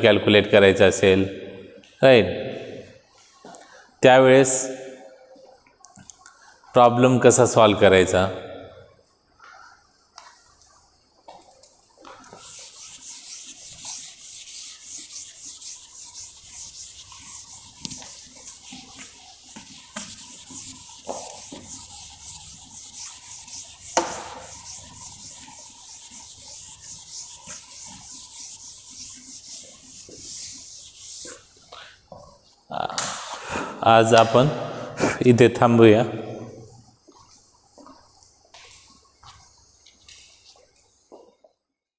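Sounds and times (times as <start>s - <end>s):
duster rubbing on blackboard: 12.1s - 32.1s.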